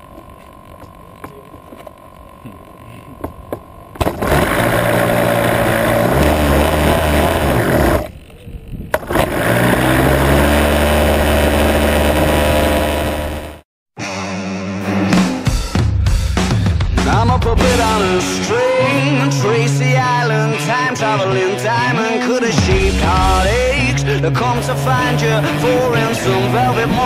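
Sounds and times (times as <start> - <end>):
model airplane engine running: 0.0 - 13.6, 24.6 - 27.0.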